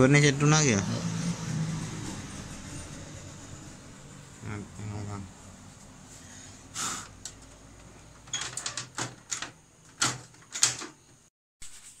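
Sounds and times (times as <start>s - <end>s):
sharp knocks of panels shutting: 7.0s - 11.3s
plastic clicks and rattles: 8.2s - 11.1s.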